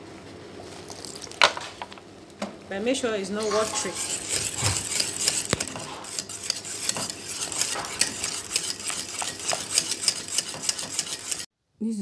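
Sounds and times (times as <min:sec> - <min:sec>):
whisk scraping a metal pot: 0:03.4 - 0:11.5.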